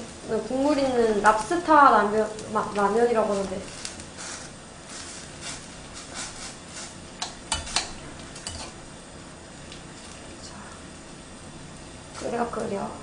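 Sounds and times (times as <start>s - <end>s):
boiling water hiss: 0.0s - 13.0s
metal tongs clinking against pot: 7.2s - 8.8s.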